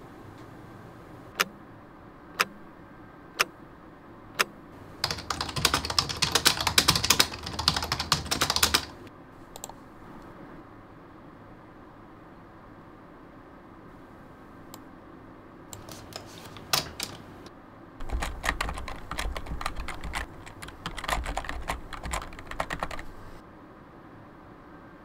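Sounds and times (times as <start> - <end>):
fast typing on keyboard: 4.9 - 9.8, 15.8 - 23.4
sharp clicks: 9.6 - 9.8, 15.8 - 23.1.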